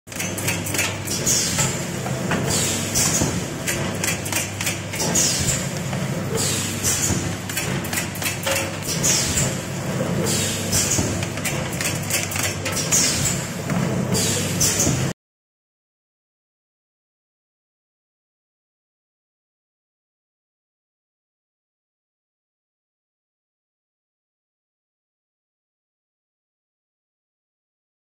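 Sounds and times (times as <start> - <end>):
machine humming: 0.1 - 15.1.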